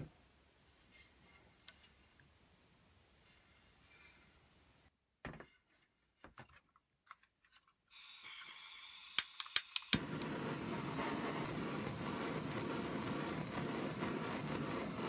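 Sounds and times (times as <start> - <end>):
gas torch hissing: 8.0 - 15.0.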